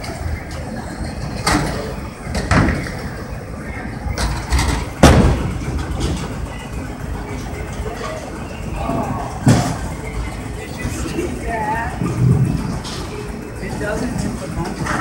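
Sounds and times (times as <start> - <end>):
steady low rumble: 3.0 - 14.9.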